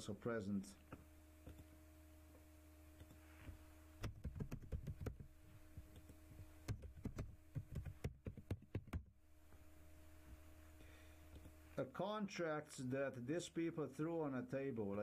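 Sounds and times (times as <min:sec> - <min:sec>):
steady low hum: 0:00.0 - 0:15.0
keyboard typing clicks: 0:04.0 - 0:05.3, 0:05.9 - 0:09.0.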